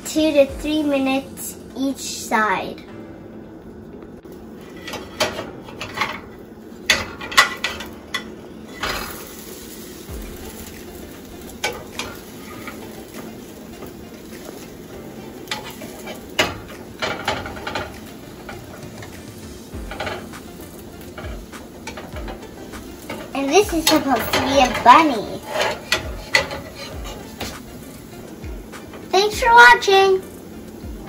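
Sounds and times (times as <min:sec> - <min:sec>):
faint sizzle: 0:00.0 - 0:31.0
spatula scraping frying pan: 0:04.6 - 0:09.7, 0:11.4 - 0:30.0.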